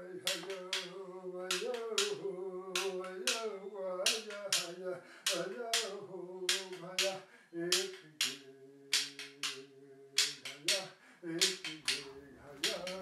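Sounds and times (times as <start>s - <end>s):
man chanting: 0.0s - 13.0s
frame drum beats: 0.3s - 0.9s.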